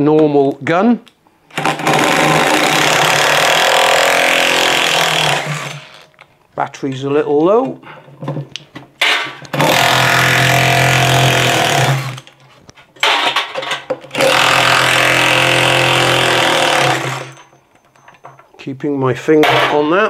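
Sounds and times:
power driver spinning out screws: 0:14.1 - 0:17.4.

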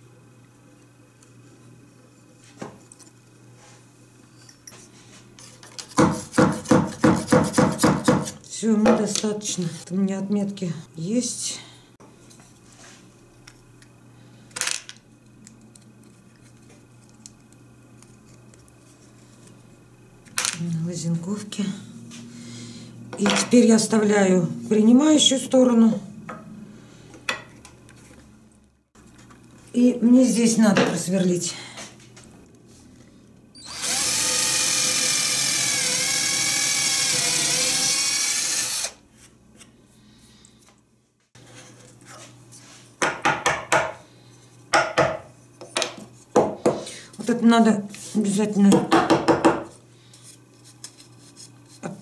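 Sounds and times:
electric drill whining: 0:33.6 - 0:39.0.

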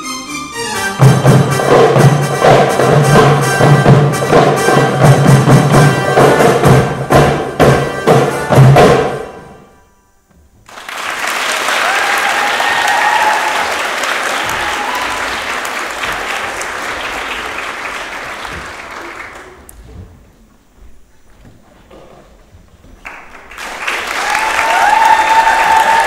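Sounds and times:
audience applauding: 0:10.7 - 0:19.7, 0:23.0 - 0:26.0.

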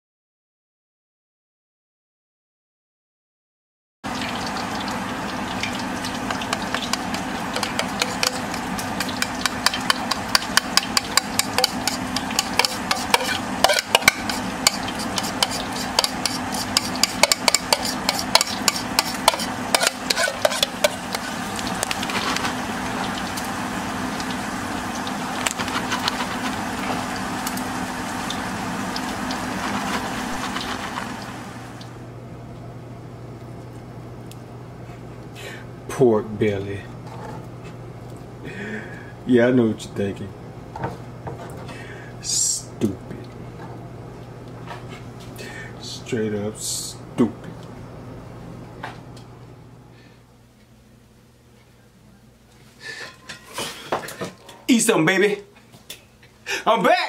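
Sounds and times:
food crackling: 0:04.1 - 0:32.6
steady low hum: 0:04.3 - 0:56.6
utensil scraping food in pan: 0:06.2 - 0:22.6, 0:25.4 - 0:27.1, 0:29.3 - 0:31.6.

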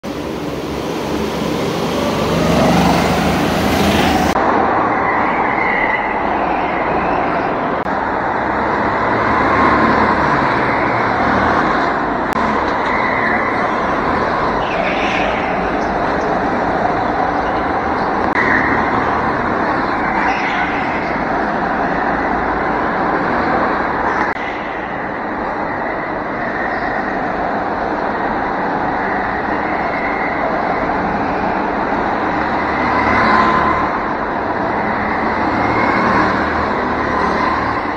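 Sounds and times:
go-kart engines revving: 0:00.0 - 0:04.4.

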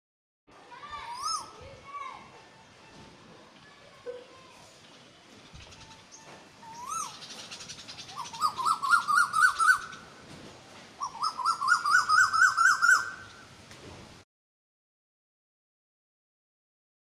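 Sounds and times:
bird calling rising notes: 0:05.6 - 0:10.2, 0:11.0 - 0:13.5.

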